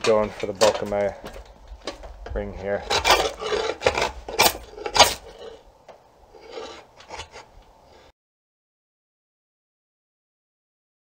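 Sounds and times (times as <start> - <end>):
draw knife scraping wood: 2.8 - 5.6, 6.4 - 7.5.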